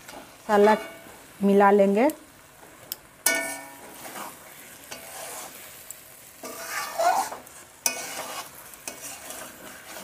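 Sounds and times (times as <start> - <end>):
food sizzling: 0.0 - 10.0
spatula clanking against pan: 3.2 - 3.8
metal spatula scraping a wok: 3.2 - 10.0.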